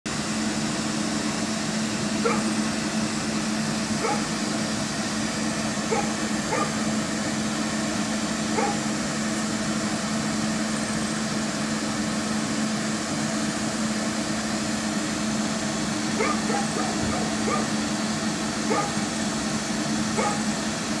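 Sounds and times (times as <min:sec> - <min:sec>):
tram equipment humming: 0:00.1 - 0:21.0.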